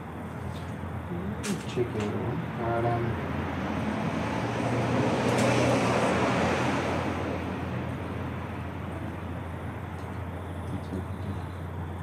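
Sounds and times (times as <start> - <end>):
vehicle passing by: 1.3 - 9.6
steady low hum: 6.9 - 12.0.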